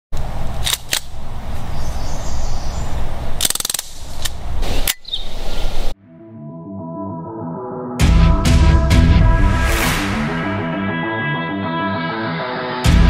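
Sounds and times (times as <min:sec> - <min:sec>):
outdoor background noise: 0:00.1 - 0:06.0
electronic music: 0:06.0 - 0:13.0.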